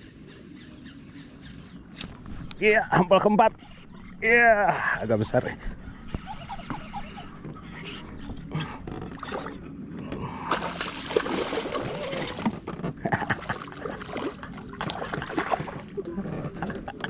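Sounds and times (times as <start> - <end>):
fish splashing at water surface: 10.5 - 12.5, 13.5 - 15.9.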